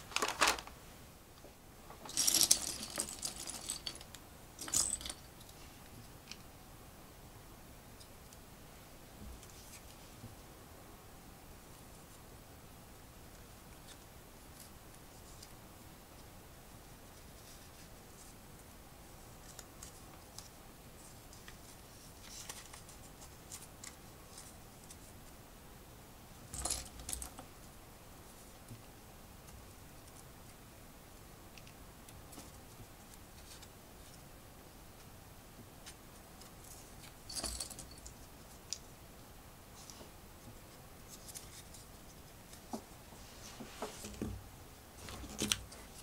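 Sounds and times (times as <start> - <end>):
loud plastic clatters: 0.0 - 0.8.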